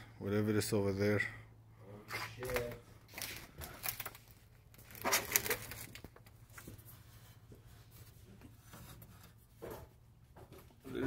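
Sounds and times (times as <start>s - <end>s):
handling rustling and clicking: 2.5s - 10.0s.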